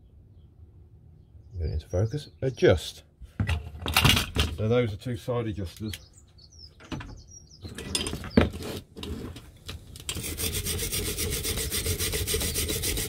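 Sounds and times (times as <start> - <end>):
wire brush scrubbing rusty steel: 10.0 - 13.0.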